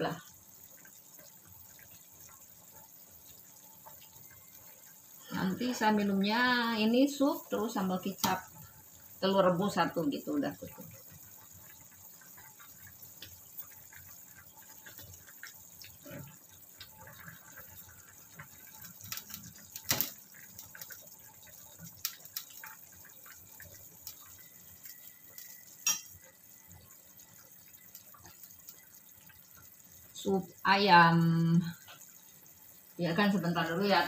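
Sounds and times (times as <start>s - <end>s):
ladle clinking on metal pot: 25.8s - 26.2s.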